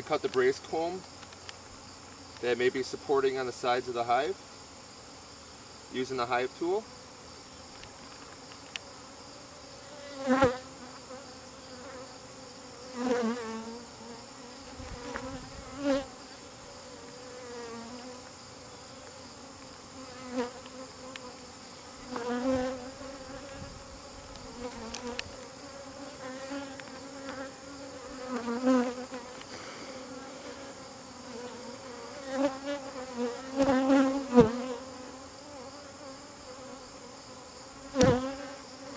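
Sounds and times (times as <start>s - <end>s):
bees humming: 6.0s - 38.9s
single bee flying past: 8.8s - 38.9s.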